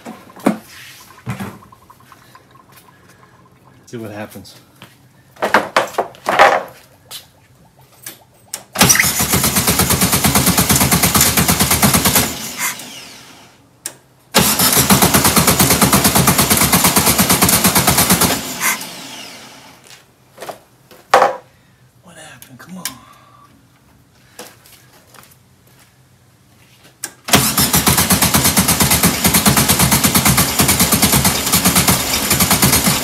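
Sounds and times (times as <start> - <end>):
car engine cranking on starter: 8.6 - 13.6, 14.3 - 19.8, 27.1 - 33.0.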